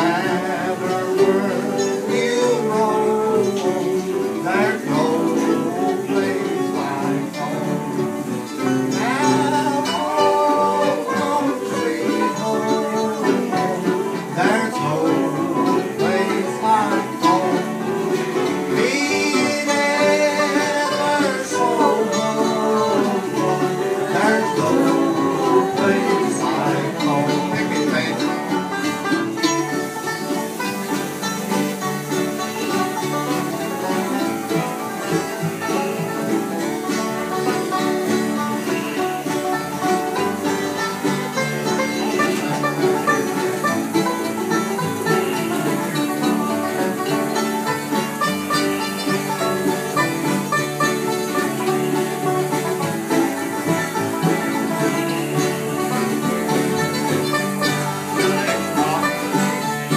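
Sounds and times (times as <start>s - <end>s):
man singing: 0.0s - 29.1s, 54.2s - 56.4s
acoustic guitar: 0.0s - 59.9s
banjo picking: 0.0s - 59.9s
fiddle: 0.0s - 59.9s
upright bass: 0.0s - 59.9s.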